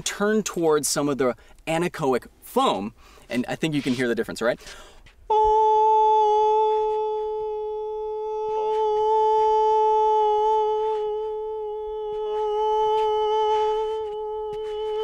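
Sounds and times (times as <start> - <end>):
man singing a high note: 5.3 - 15.0.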